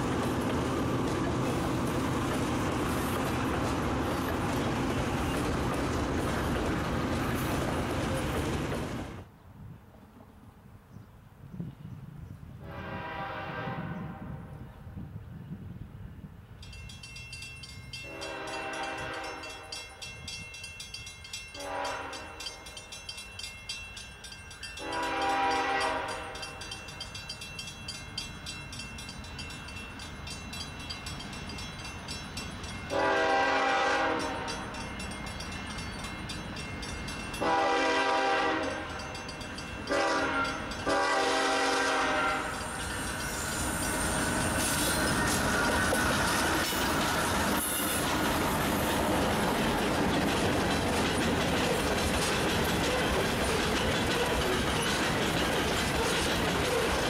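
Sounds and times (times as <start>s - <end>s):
train rumbling: 0.0s - 10.4s, 11.5s - 57.0s
locomotive horn blasts: 12.6s - 14.4s, 18.0s - 19.8s, 21.6s - 22.4s, 24.8s - 26.5s, 32.9s - 34.6s, 37.4s - 39.0s, 39.9s - 42.7s
crossing bell ringing: 16.6s - 48.1s, 49.0s - 57.0s.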